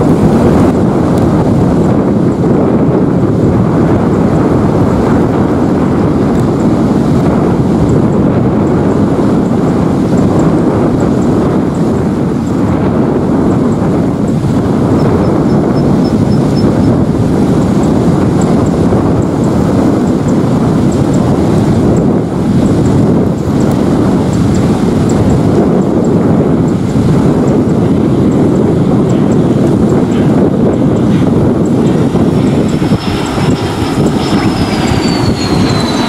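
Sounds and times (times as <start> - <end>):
jet engines roaring: 0.0 - 36.0
wind buffeting microphone: 0.0 - 36.0.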